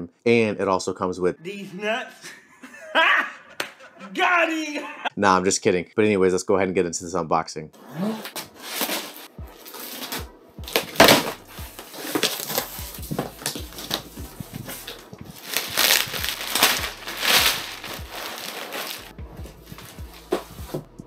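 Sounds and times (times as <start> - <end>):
cardboard ripping: 7.8 - 19.1
cardboard flaps rustling: 8.2 - 20.9
plastic wrapping crinkling: 8.7 - 19.1.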